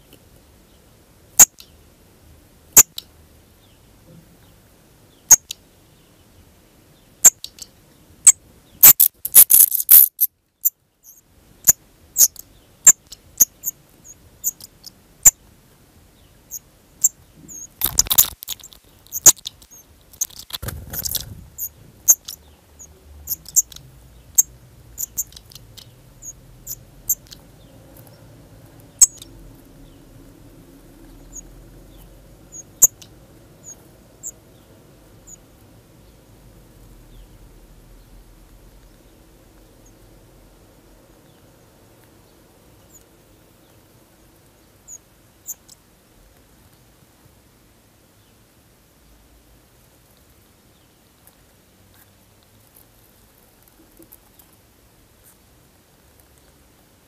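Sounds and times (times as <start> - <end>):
birds chirping: 2.8 - 45.9.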